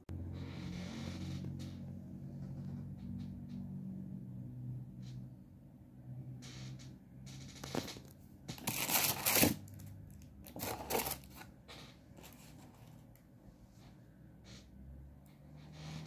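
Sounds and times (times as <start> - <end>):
paper cards rustling: 7.6 - 11.5.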